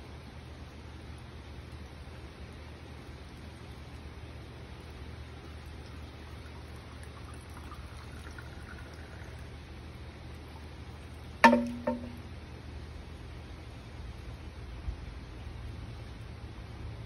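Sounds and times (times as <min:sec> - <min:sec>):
water trickling: 0:00.1 - 0:12.4
bamboo knocking on stone: 0:11.4 - 0:12.2.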